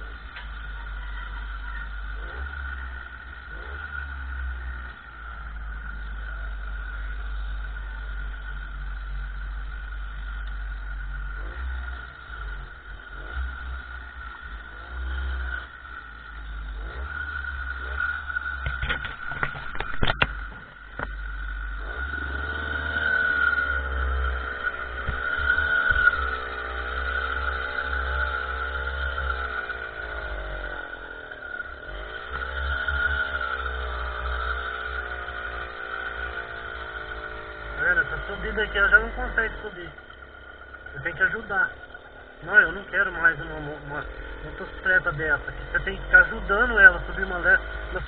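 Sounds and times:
small motorcycle engine: 0:00.0 - 0:48.0
steady high whine: 0:00.0 - 0:48.0
sharp knocks and rattles: 0:17.9 - 0:21.3.

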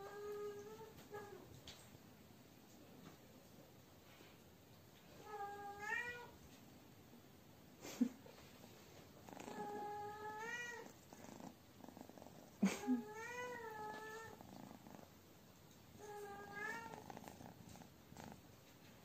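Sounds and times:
cat meowing: 0:05.4 - 0:06.3, 0:09.7 - 0:10.9, 0:16.0 - 0:17.0.

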